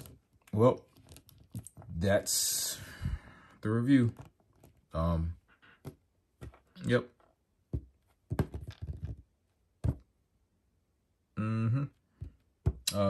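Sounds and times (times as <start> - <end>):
plastic parts tapping on wooden table: 7.7 - 9.2
person humming: 11.4 - 12.0.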